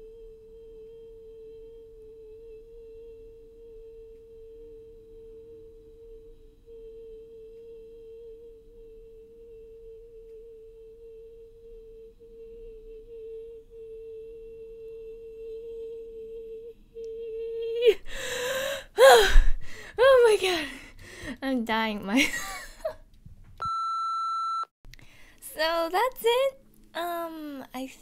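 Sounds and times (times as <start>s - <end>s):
woman breathing in loudly: 17.9s - 20.0s, 20.6s - 21.4s.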